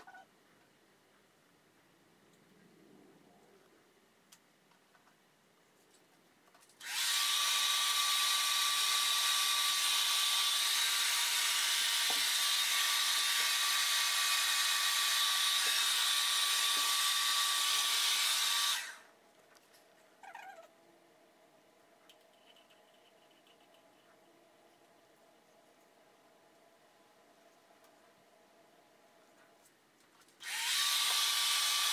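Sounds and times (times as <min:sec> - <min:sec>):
hair dryer blowing: 0:06.8 - 0:19.1, 0:30.4 - 0:31.9.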